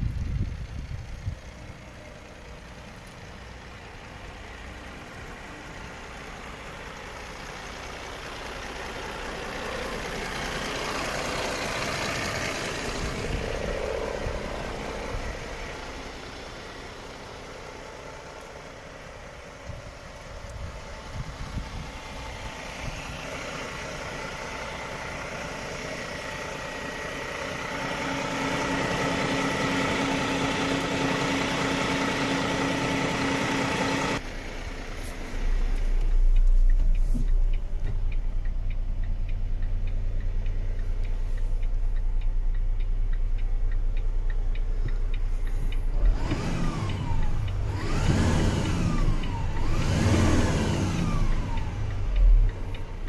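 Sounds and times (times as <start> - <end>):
diesel truck engine idling: 0.0 - 53.0
engine revving: 7.5 - 17.7, 21.0 - 53.0.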